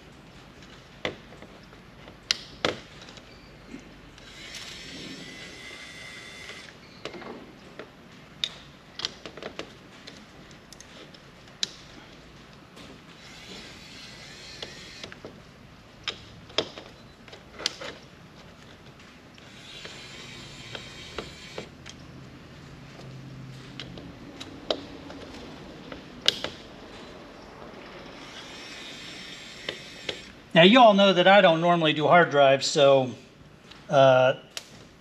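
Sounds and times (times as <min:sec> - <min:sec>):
electric screwdriver whirring: 0:04.2 - 0:06.8, 0:13.2 - 0:15.2, 0:19.4 - 0:21.7, 0:28.2 - 0:30.4.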